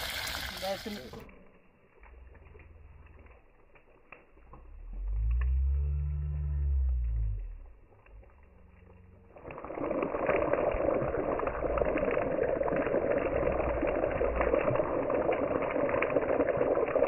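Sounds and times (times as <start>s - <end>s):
fish sizzling in hot oil: 9.4s - 17.0s.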